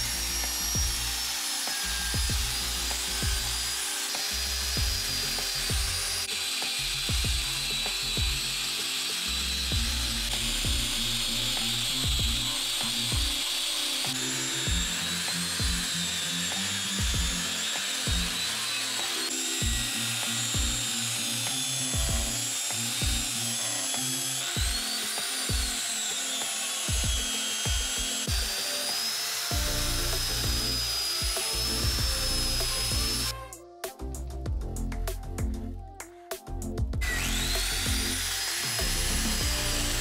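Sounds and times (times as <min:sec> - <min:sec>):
angle grinder whine on steel: 0:00.0 - 0:33.6, 0:37.0 - 0:40.0
music with steady beat: 0:00.0 - 0:40.0.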